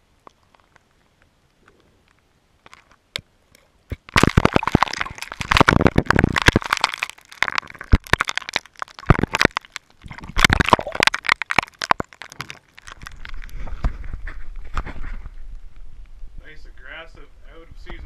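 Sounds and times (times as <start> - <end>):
churned water: 3.5 - 13.7.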